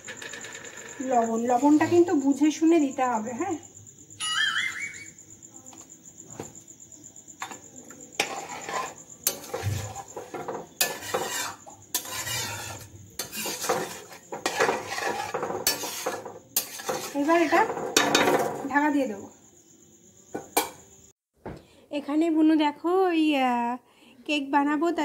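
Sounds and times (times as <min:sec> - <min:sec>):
metal spatula scraping wok: 0:00.0 - 0:02.2, 0:07.4 - 0:18.7.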